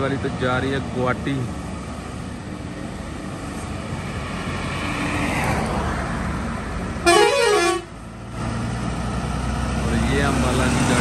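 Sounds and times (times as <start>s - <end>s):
truck diesel engines running: 0.0s - 11.0s
truck horn blast: 7.0s - 8.0s.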